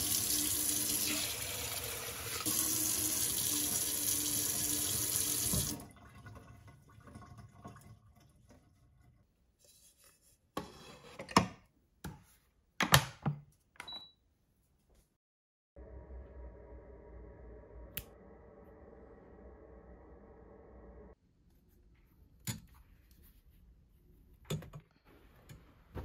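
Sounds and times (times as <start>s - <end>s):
tap water running into pot: 0.0s - 9.0s.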